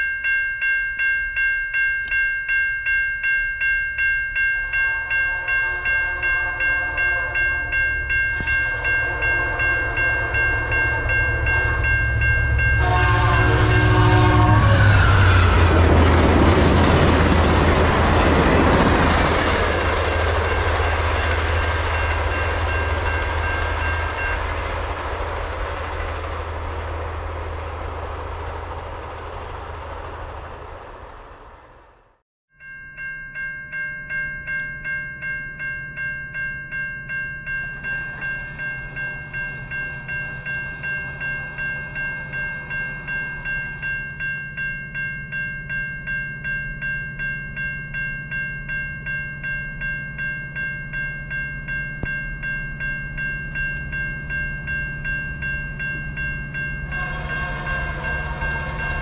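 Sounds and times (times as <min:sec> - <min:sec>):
level-crossing bell ringing: 0:00.0 - 0:30.0, 0:32.5 - 0:59.0
train horn blasts: 0:04.6 - 0:17.0, 0:56.9 - 0:59.0
train wheels clattering on rails: 0:14.0 - 0:31.9.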